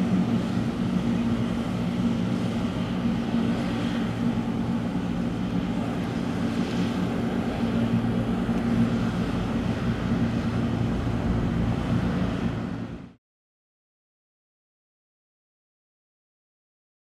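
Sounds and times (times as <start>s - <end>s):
boat engine drone: 0.0s - 13.2s.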